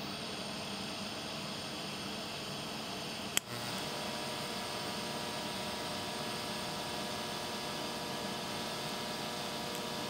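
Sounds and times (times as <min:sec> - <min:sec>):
faint hum: 0:00.0 - 0:10.0.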